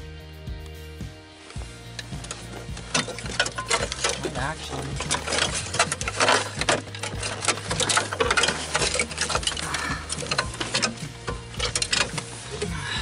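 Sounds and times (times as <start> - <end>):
wiring clicks and rattles: 1.5 - 13.0.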